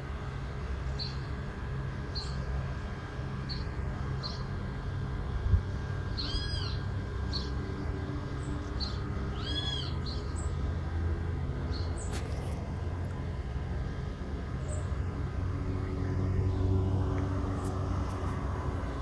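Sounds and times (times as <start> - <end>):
steady low rumble: 0.0 - 19.0
arched bird calls: 6.2 - 7.6, 8.4 - 10.6.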